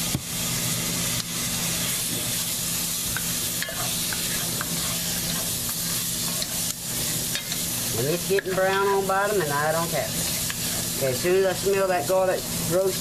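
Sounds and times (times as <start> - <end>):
steady low hum: 0.0 - 13.0
vegetables sizzling in oil: 0.0 - 13.0
wooden spoon scraping a pot: 3.6 - 9.1, 10.1 - 11.0.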